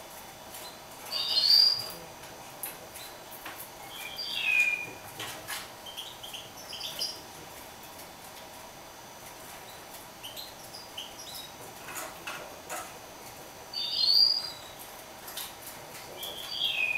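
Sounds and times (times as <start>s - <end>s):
finch twittering song: 0.6s - 1.9s, 3.8s - 5.0s, 13.7s - 14.8s, 16.2s - 16.9s.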